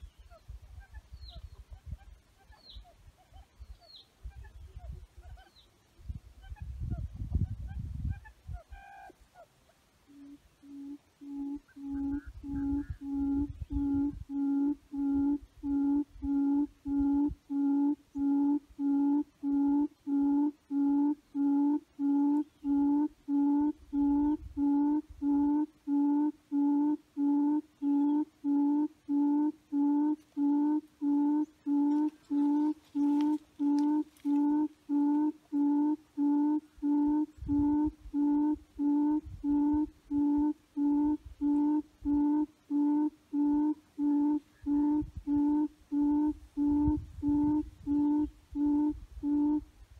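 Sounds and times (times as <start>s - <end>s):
low hooting animal call: 10.1s - 49.7s.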